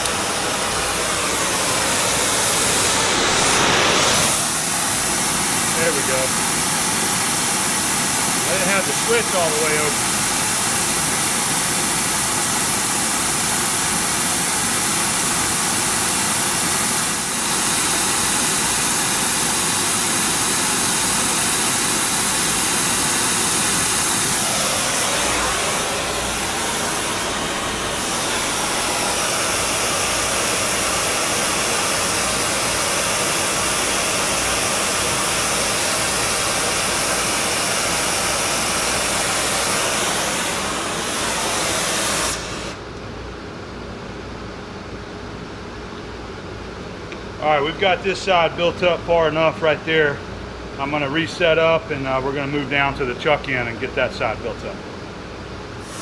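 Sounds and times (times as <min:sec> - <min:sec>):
welding torch hissing: 0:00.0 - 0:42.9, 0:55.8 - 0:56.0.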